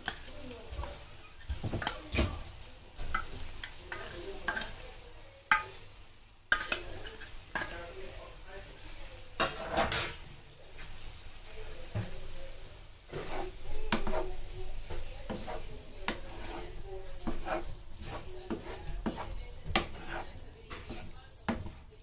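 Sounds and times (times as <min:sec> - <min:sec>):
light sizzle from pan: 0:00.0 - 0:22.0
fork scraping and tapping tin can: 0:13.1 - 0:14.3, 0:14.9 - 0:21.7.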